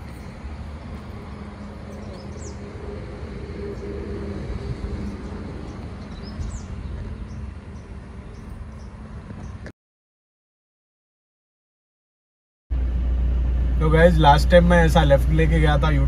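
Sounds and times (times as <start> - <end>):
car driving rumble: 0.0 - 9.7, 12.7 - 16.0
bird chirps: 1.8 - 9.7.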